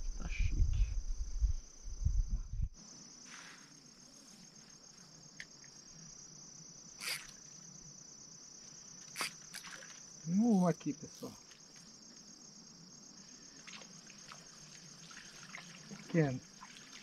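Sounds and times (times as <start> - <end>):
low rumble: 0.0 - 2.8
insects trilling: 0.0 - 17.0.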